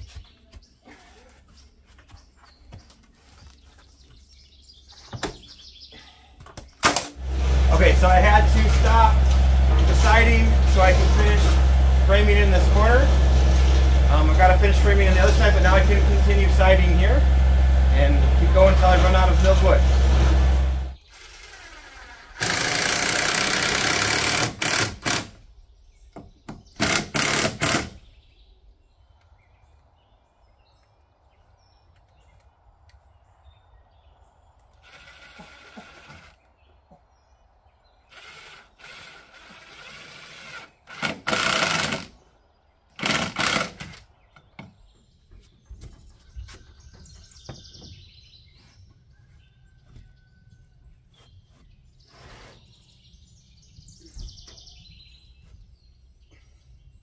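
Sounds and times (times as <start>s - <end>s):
birds chirping faintly: 0.0s - 6.8s, 28.0s - 57.0s
cordless drill driving screws: 6.9s - 17.0s, 18.0s - 25.4s, 26.8s - 28.0s, 34.8s - 36.4s, 38.1s - 42.1s, 43.0s - 44.1s.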